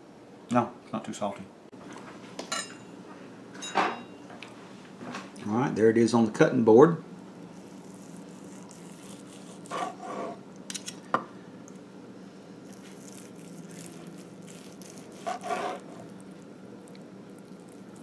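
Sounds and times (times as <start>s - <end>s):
steady low hum: 0.0s - 18.0s
knife cutting meat: 7.5s - 11.0s, 12.7s - 16.3s.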